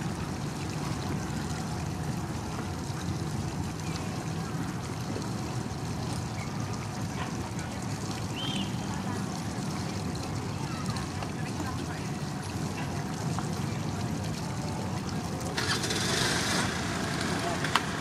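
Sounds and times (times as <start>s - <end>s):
low rumble of boat engines: 0.0s - 18.0s
water washing: 0.0s - 18.0s.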